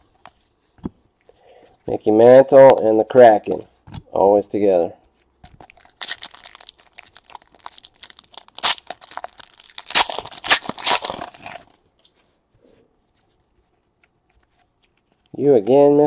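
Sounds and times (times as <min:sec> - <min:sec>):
foil wrapper crinkling: 0:05.5 - 0:11.8
foil wrapper ripping: 0:05.6 - 0:11.8.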